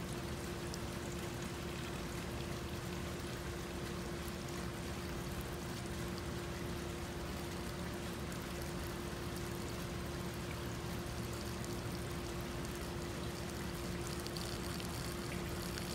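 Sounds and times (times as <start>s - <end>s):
water trickling onto concrete: 0.0s - 15.9s
steady hum: 8.4s - 15.9s.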